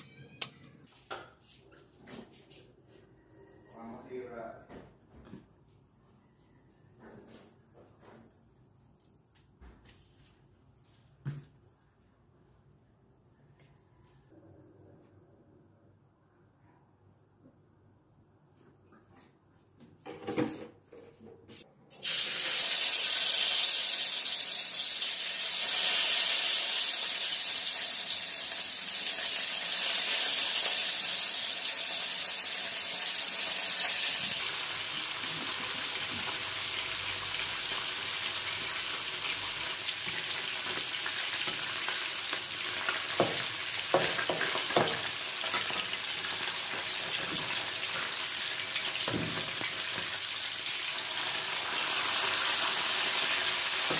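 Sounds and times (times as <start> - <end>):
fish sizzling in hot oil: 22.0 - 53.9.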